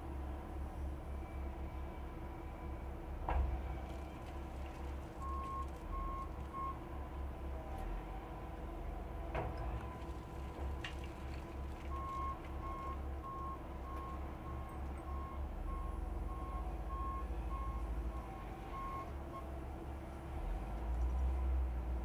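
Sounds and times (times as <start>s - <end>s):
diesel engine rumble: 0.0s - 22.0s.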